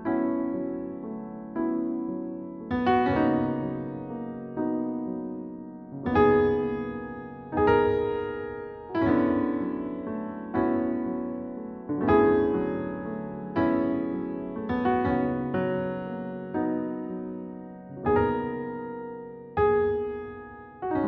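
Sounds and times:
soft piano chords: 0:00.0 - 0:21.0.

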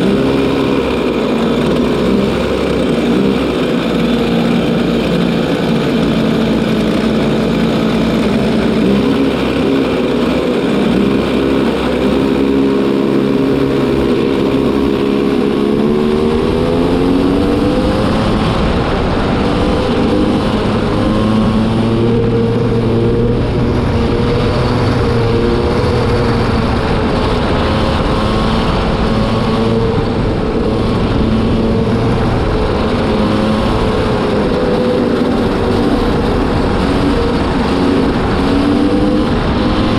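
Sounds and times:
racing kart engine running hard: 0:00.0 - 0:39.9.

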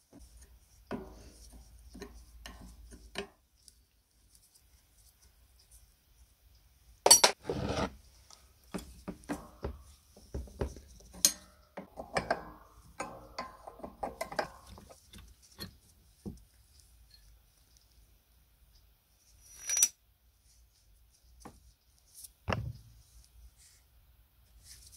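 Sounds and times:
spanner clinking and scraping metal: 0:11.2 - 0:15.8.

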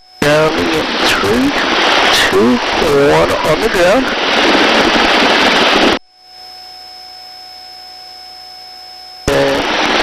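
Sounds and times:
faint electronic hum: 0:00.0 - 0:10.0
helicopter noise and wind: 0:00.2 - 0:06.0
thin electronic tones: 0:06.0 - 0:09.7.

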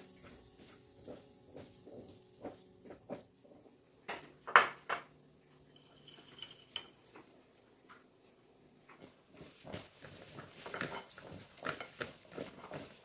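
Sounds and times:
strainer clinking against wok: 0:05.8 - 0:07.0.

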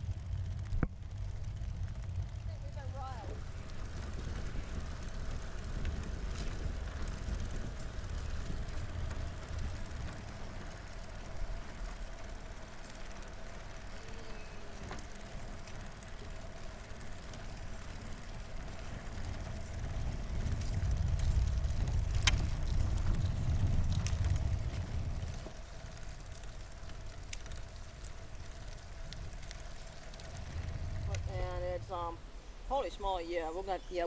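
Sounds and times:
tyres rolling on road: 0:00.0 - 0:33.8
wind on microphone: 0:19.0 - 0:25.6.

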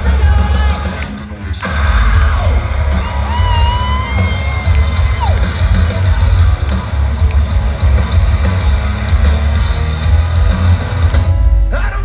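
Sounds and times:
rock band playing live: 0:00.0 - 0:12.0.

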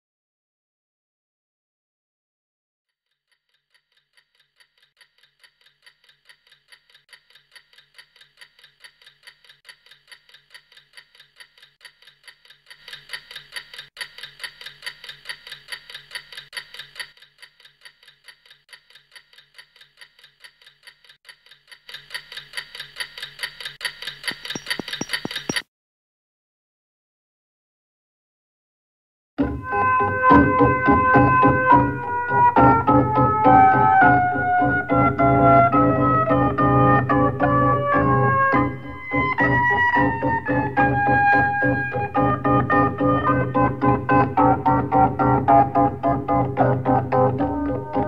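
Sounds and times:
clock ticking fast: 0:03.1 - 0:25.7.

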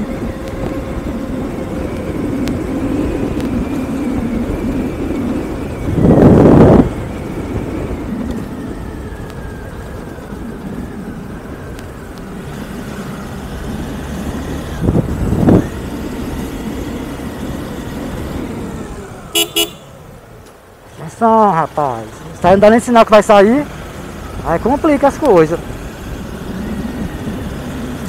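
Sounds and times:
wind buffeting microphone: 0:00.0 - 0:19.3
motorcycle engine running: 0:00.0 - 0:28.0.

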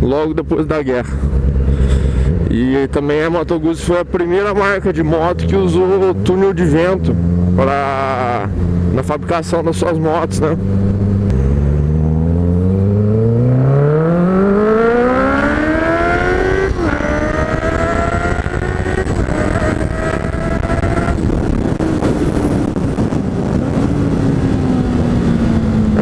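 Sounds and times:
motorcycle engine accelerating: 0:00.0 - 0:26.0
wind rushing over microphone: 0:10.6 - 0:26.0.

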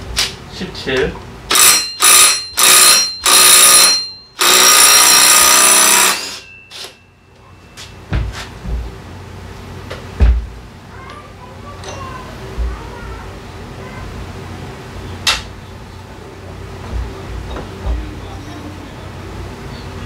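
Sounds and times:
impact wrench hammering: 0:01.5 - 0:07.0.

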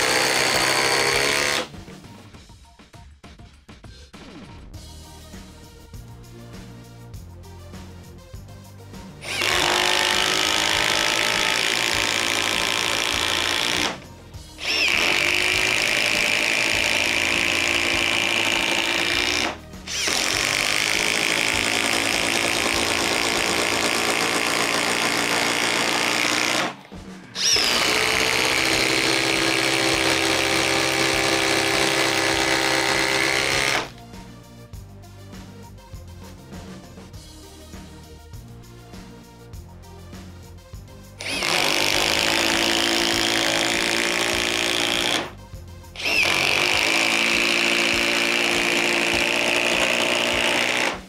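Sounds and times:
impact driver hammering: 0:00.0 - 0:01.7, 0:09.2 - 0:14.0, 0:14.6 - 0:33.9, 0:41.2 - 0:45.3, 0:46.0 - 0:51.0
background music: 0:00.0 - 0:51.0.

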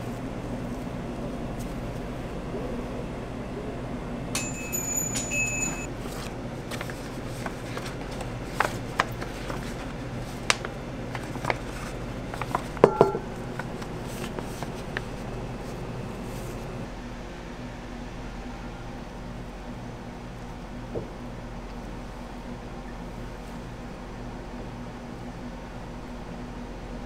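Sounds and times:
kitchen equipment hum: 0:00.0 - 0:26.0
electronic appliance beeping: 0:04.4 - 0:05.9
sharp clinks: 0:04.4 - 0:05.9
paper rustling and tapping: 0:06.0 - 0:15.8.

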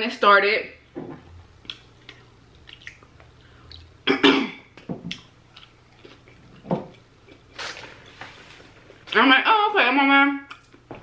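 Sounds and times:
mouth clicks and smacks eating: 0:01.6 - 0:03.9
cough-like throat sound: 0:04.1 - 0:04.7.

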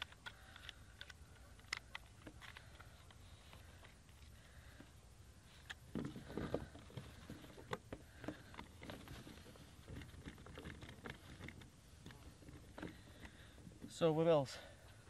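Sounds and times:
clicks taps and rustles of hands: 0:00.0 - 0:04.9.

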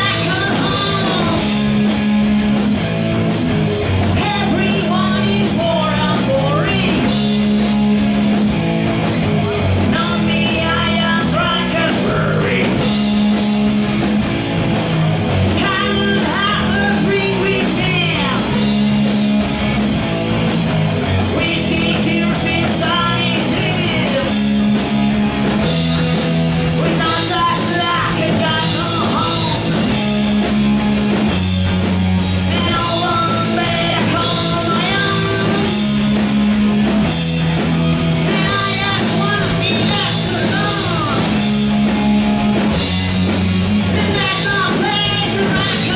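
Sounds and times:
person singing: 0:00.0 - 0:01.6, 0:04.2 - 0:07.2, 0:09.9 - 0:12.9, 0:15.6 - 0:18.8, 0:21.3 - 0:24.6, 0:26.8 - 0:30.0, 0:32.5 - 0:36.0, 0:38.2 - 0:41.4, 0:43.8 - 0:45.9
drum kit: 0:00.0 - 0:45.9
electric guitars: 0:00.0 - 0:45.9.

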